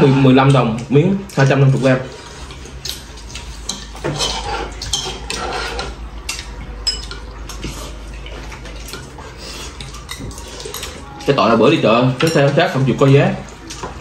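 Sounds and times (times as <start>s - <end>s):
people eating soup: 0.0s - 14.0s
spoon and chopsticks clinking on bowls: 2.8s - 14.0s.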